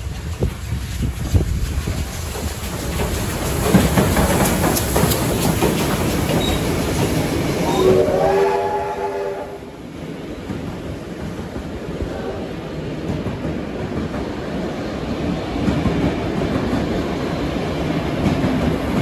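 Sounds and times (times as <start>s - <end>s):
wheels clicking over rail joints: 0.0s - 7.8s
steam train passing: 0.0s - 19.0s
train whistle: 7.6s - 9.8s.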